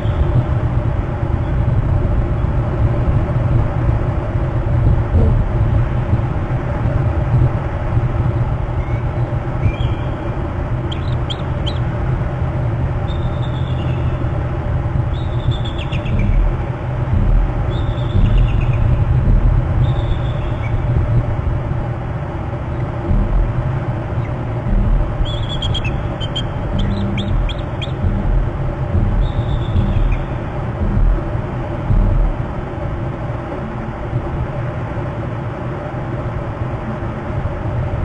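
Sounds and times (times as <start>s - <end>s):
steady low rumble: 0.0s - 38.0s
bird calls high falling notes: 25.1s - 28.3s, 29.0s - 30.4s.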